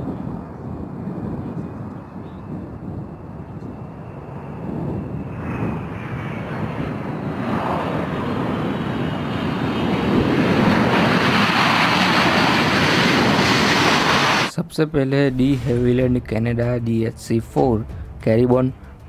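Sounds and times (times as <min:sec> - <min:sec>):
jet engines running: 0:00.0 - 0:14.6.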